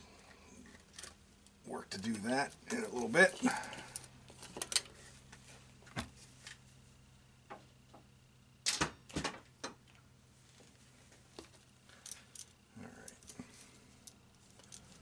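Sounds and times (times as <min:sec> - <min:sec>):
faint steady hum: 0:00.0 - 0:15.0
small parts and tools clicking: 0:02.5 - 0:05.0, 0:11.4 - 0:15.0.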